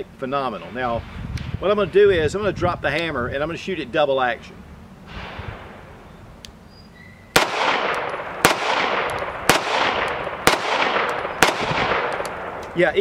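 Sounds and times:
pistol shots with echo: 0:07.4 - 0:12.8.

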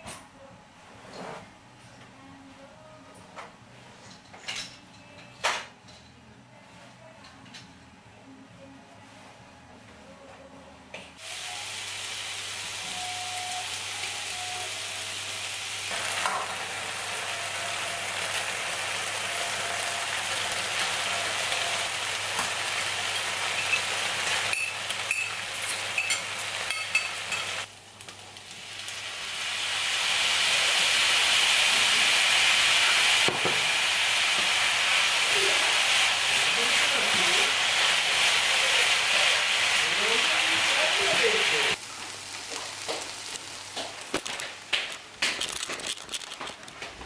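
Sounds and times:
food sizzling in a frying pan: 0:11.2 - 0:46.4.

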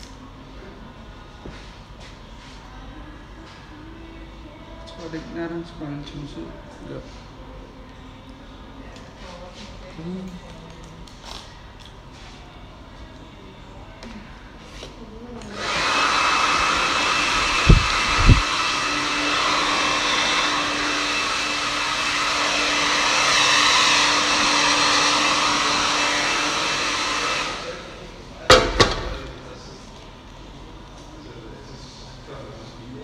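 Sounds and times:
hair dryer blowing: 0:15.4 - 0:29.2.

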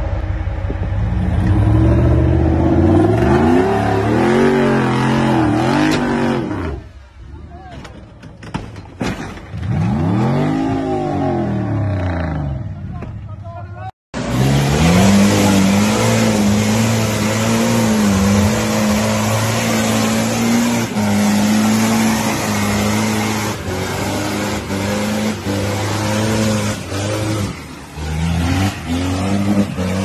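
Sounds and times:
off-road engine revving under load: 0:01.1 - 0:06.9, 0:09.6 - 0:12.8, 0:14.2 - 0:30.0
mud and water spraying: 0:14.2 - 0:30.0.

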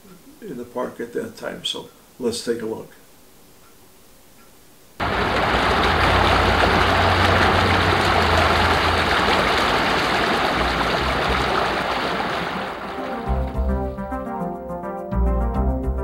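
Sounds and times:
rushing water: 0:05.0 - 0:14.1
low rumble: 0:12.8 - 0:14.0.

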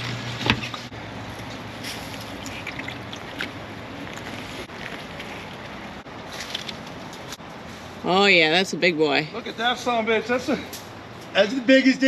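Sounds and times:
boat motor humming: 0:00.0 - 0:06.2
leaves and twigs crunching underfoot: 0:01.2 - 0:08.3.

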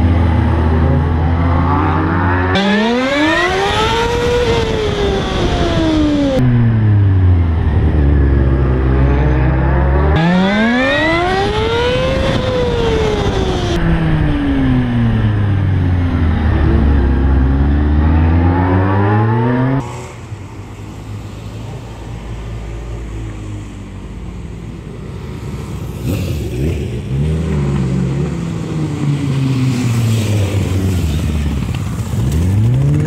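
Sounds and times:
motorcycle engine accelerating: 0:00.0 - 0:19.9
motorcycles passing: 0:00.0 - 0:33.0
roadside noise: 0:00.0 - 0:33.0.

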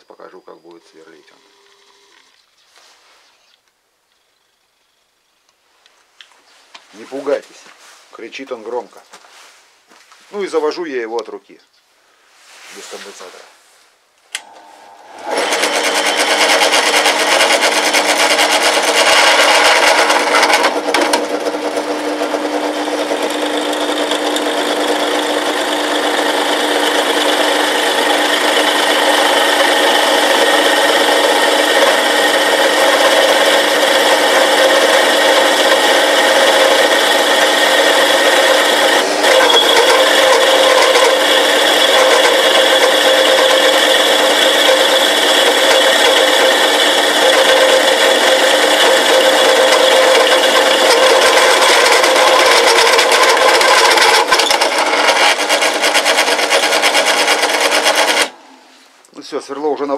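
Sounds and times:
drill press motor humming: 0:01.1 - 0:02.4, 0:14.3 - 0:58.4
drill cutting into steel: 0:14.4 - 0:58.4.

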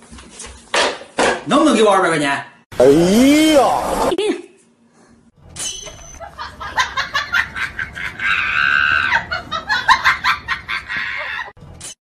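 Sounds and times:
shrieking laughter: 0:06.2 - 0:11.6.

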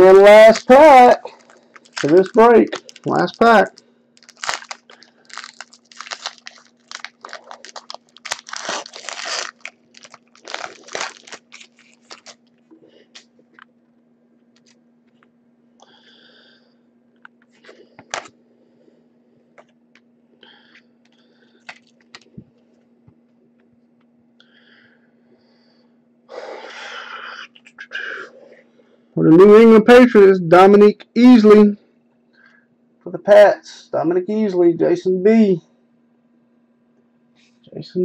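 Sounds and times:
steady low hum: 0:00.0 - 0:38.0
foil wrapper crinkling and tearing: 0:00.4 - 0:12.5, 0:17.6 - 0:18.3, 0:21.6 - 0:22.3.

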